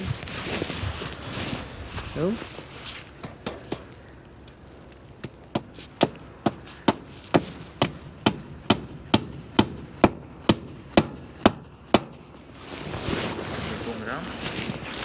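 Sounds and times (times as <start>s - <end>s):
hammer striking wooden post: 3.2s - 3.9s, 5.2s - 12.3s.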